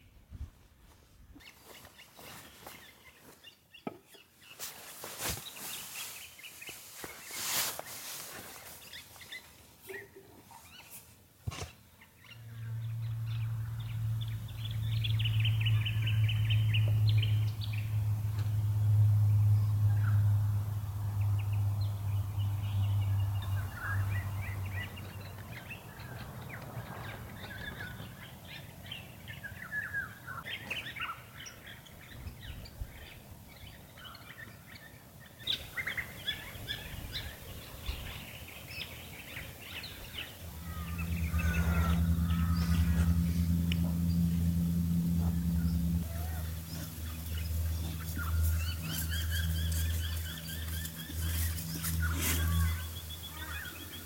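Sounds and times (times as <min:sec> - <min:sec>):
wild birds calling and chirping: 0:08.6 - 0:54.0
loud low steady hum: 0:12.3 - 0:25.5, 0:39.6 - 0:54.0.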